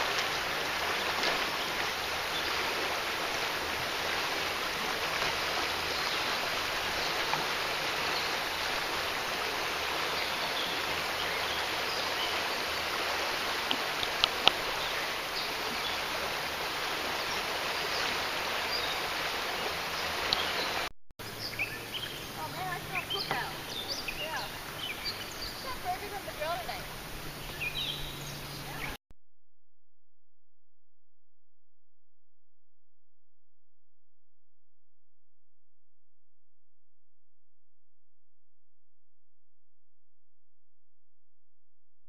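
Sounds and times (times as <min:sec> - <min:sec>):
creek water rushing: 0:00.0 - 0:29.0.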